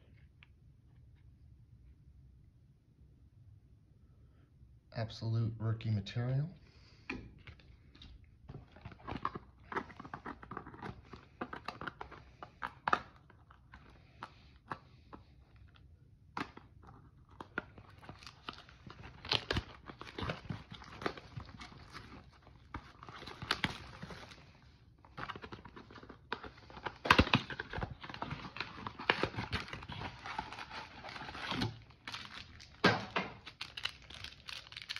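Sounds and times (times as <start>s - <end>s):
wrapping crinkling and tearing: 7.4s - 34.9s.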